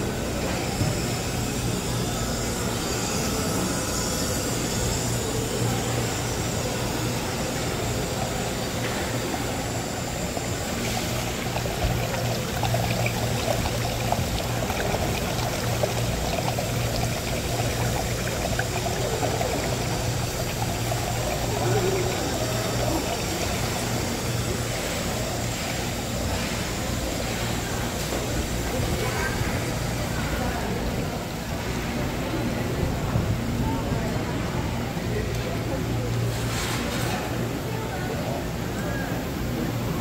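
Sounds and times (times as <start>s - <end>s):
water pouring and trickling: 0.4s - 32.6s
low steady hum: 7.7s - 24.6s.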